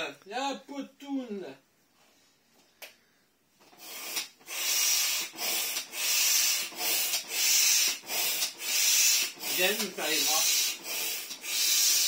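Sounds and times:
hand air pump strokes: 3.6 - 12.0.

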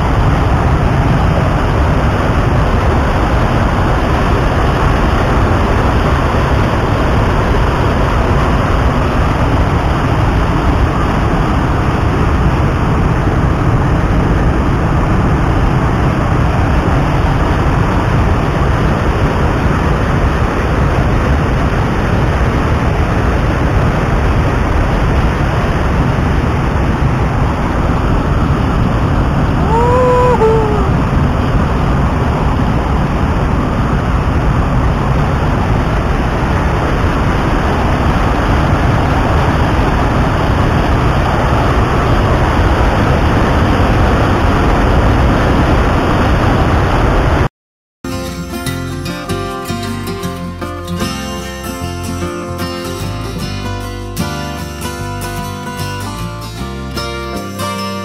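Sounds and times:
waterfall rushing over rocks: 0.0 - 32.5.

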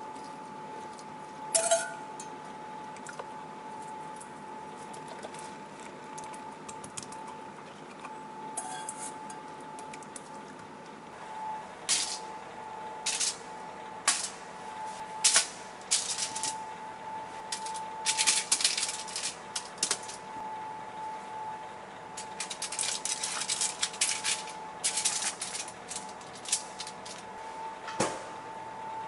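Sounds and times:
faint high hum: 0.0 - 29.0
aluminium foil crinkling: 15.2 - 16.6, 17.5 - 20.3, 22.2 - 27.3.

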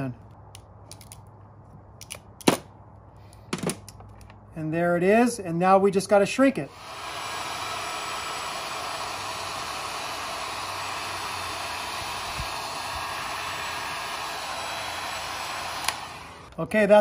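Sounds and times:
heat gun blowing: 6.6 - 16.5.

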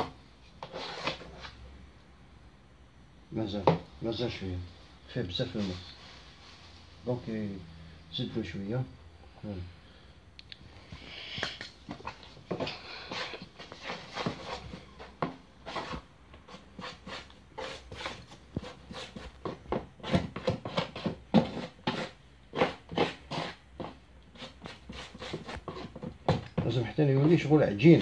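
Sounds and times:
putty knife scraping wet filler: 0.6 - 1.5, 12.0 - 26.7.

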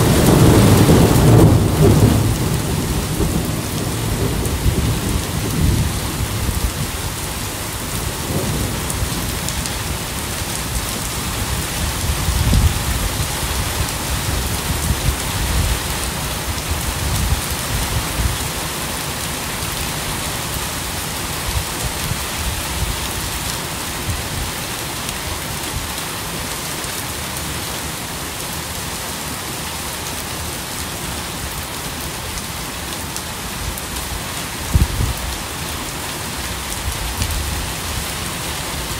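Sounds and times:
rain hissing: 0.0 - 26.5.

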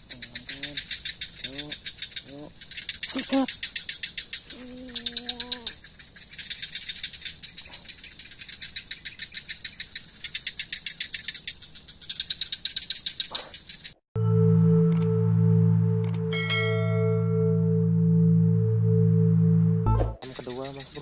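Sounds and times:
night insects chirping: 0.0 - 14.0, 17.6 - 21.0
bell-like chime with hum: 14.2 - 20.2
low-pitched call: 14.2 - 20.2.

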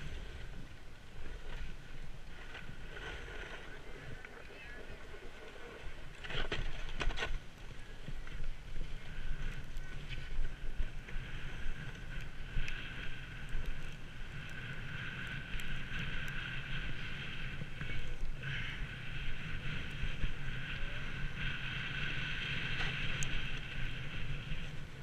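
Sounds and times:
edges scraping over snow: 0.0 - 7.5
wind on microphone: 0.0 - 25.0.

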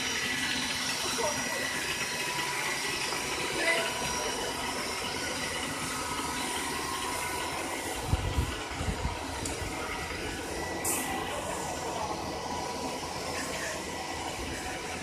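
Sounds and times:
faint voices: 0.0 - 5.3, 9.5 - 15.0
bus engine and hiss: 0.0 - 15.0.

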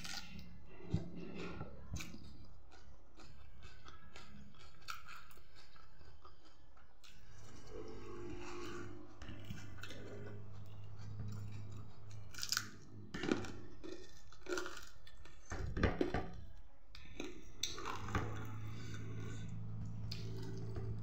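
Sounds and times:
person chewing food: 0.0 - 21.0
low hum: 7.2 - 14.4, 17.5 - 21.0.

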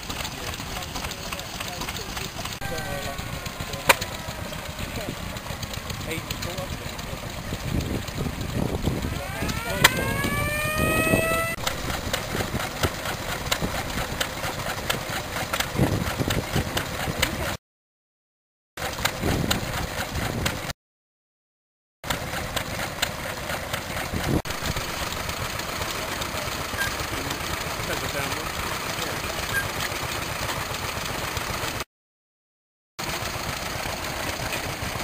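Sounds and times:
rising whine: 2.6 - 6.5, 8.5 - 13.0, 24.5 - 25.4.

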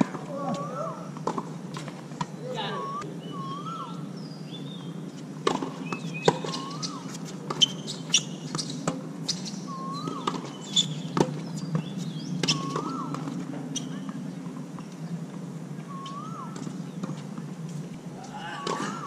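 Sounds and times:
birds chirping: 0.3 - 1.4, 2.3 - 19.0
birds whistling: 0.4 - 1.3, 2.4 - 4.9, 5.8 - 14.2, 15.8 - 17.1, 18.2 - 19.0.

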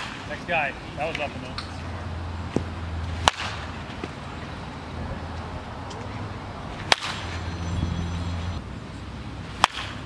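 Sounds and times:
bat cracking ball: 2.5 - 4.2, 6.8 - 7.4, 9.6 - 10.0.

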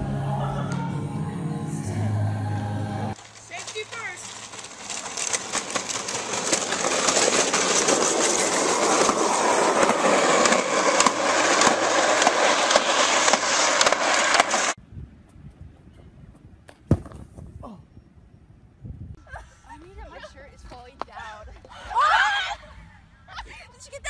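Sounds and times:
plastic wheels rattling on asphalt: 3.2 - 14.8.

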